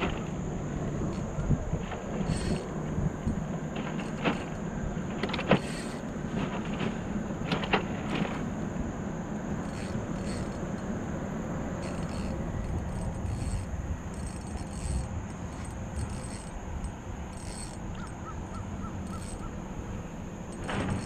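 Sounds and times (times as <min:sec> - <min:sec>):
sharp clicks and knocks: 0:00.0 - 0:08.6, 0:09.5 - 0:18.2, 0:18.9 - 0:19.6, 0:20.5 - 0:21.0
fishing reel winding: 0:02.2 - 0:02.7, 0:05.6 - 0:06.0, 0:09.6 - 0:10.9, 0:11.8 - 0:18.2, 0:19.0 - 0:19.5.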